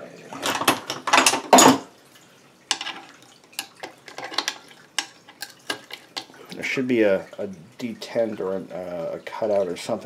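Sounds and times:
metal parts clattering and scraping: 0.3 - 1.8, 4.1 - 6.3.

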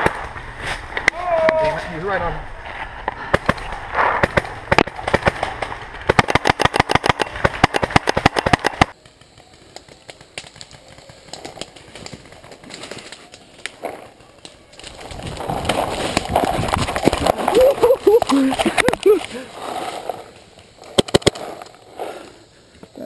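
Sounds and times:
paintball marker rapid firing: 3.3 - 13.0, 20.8 - 21.7
rustling through brush: 9.0 - 22.5.

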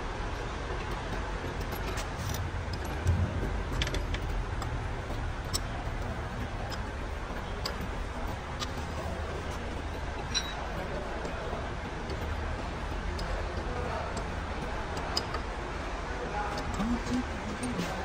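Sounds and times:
low rumble: 3.0 - 4.6
hand tools clinking on metal: 10.1 - 11.0.

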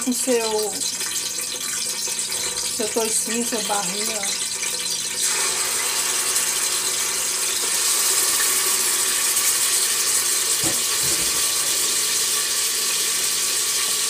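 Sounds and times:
meat sizzling in hot oil: 0.0 - 14.0
soft knocks: 10.6 - 11.8.

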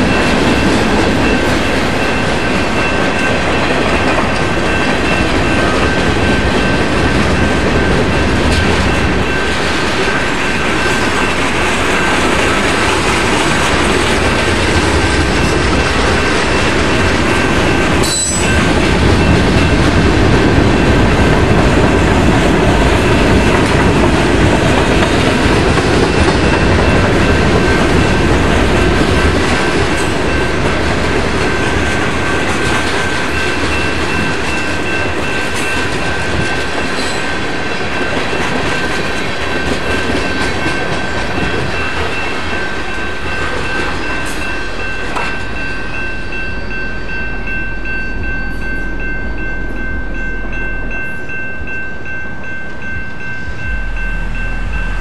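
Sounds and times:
train wheels clattering over rails: 0.0 - 45.7
steady high-pitched tone: 39.6 - 55.0.

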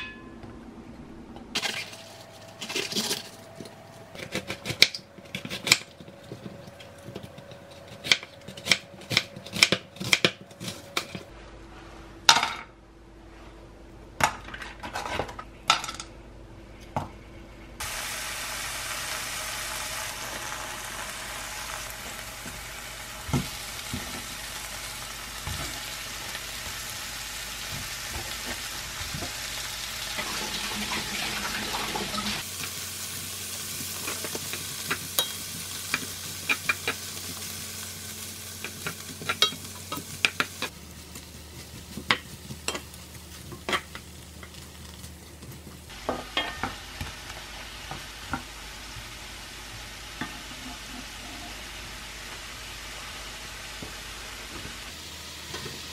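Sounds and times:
shrimp sizzling in frying pan: 17.8 - 55.9.

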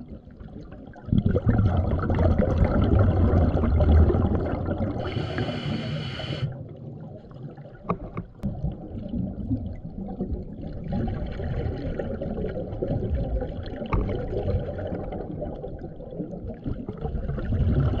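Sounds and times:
underwater bubbling and gurgling: 0.0 - 18.0
hiss of bubbles: 1.4 - 6.7.

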